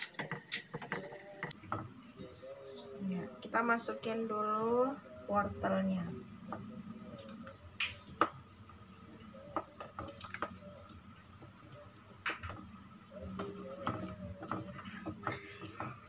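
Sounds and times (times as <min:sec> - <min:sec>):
wooden spatula tapping and scraping: 0:00.0 - 0:01.9, 0:09.5 - 0:16.0.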